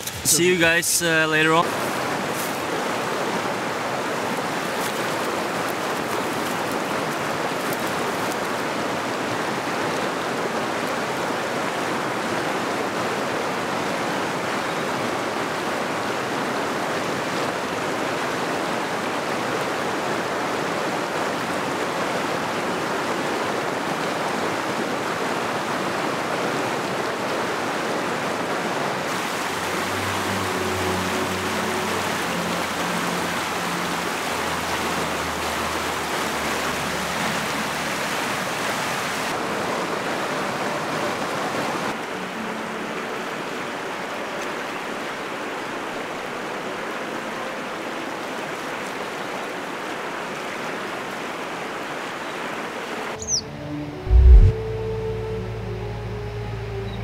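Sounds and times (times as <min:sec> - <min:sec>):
river rushing over rocks: 0:00.0 - 0:53.2
faint low held tones: 0:53.3 - 0:57.0.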